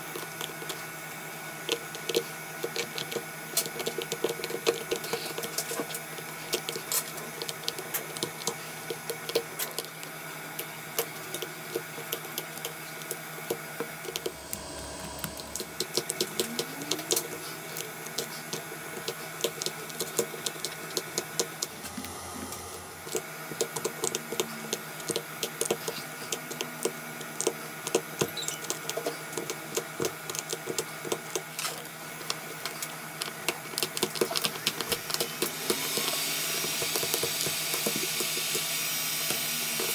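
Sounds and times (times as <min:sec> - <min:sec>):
steady hum: 0:14.0 - 0:27.9.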